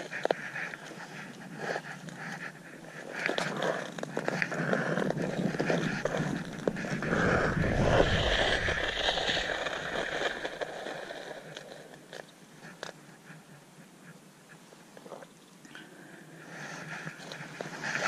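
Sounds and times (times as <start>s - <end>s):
ice skate blades scraping ice: 3.0s - 12.2s
low rumble: 6.0s - 11.5s.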